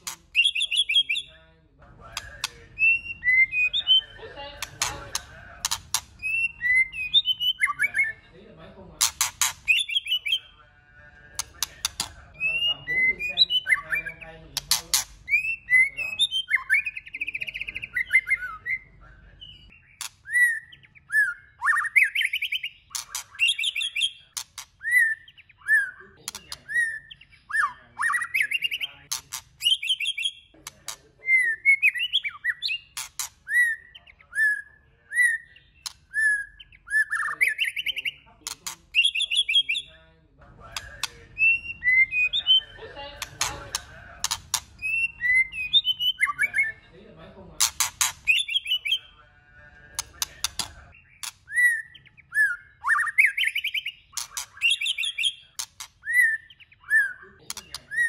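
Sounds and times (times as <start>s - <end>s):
sharp bird clicks: 0.0s - 1.3s, 2.1s - 4.0s, 4.6s - 8.0s, 9.0s - 10.4s, 11.3s - 12.7s, 13.4s - 18.5s, 19.7s - 31.0s, 31.7s - 34.0s, 35.6s - 39.8s, 40.7s - 46.5s, 47.6s - 49.0s, 49.9s - 58.0s
bird singing whistled notes: 0.3s - 1.3s, 2.8s - 4.2s, 6.2s - 8.2s, 9.7s - 10.5s, 11.9s - 14.3s, 15.3s - 28.9s, 29.6s - 30.5s, 31.2s - 38.2s, 39.0s - 40.0s, 41.0s - 42.8s, 44.8s - 46.8s, 48.2s - 49.1s, 50.5s - 58.0s.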